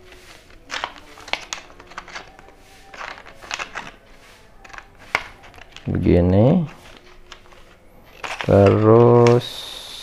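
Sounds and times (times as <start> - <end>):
plastic crackling: 0.0 - 9.6.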